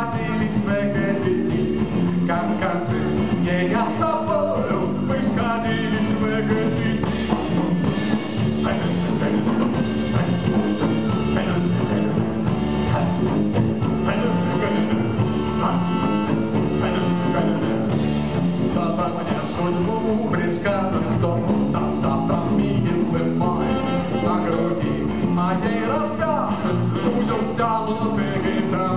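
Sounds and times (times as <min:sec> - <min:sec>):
drum kit: 0:00.0 - 0:28.9
guitar: 0:00.0 - 0:28.9
live band playing: 0:00.0 - 0:28.9
clarinet: 0:07.1 - 0:18.7, 0:22.4 - 0:28.9.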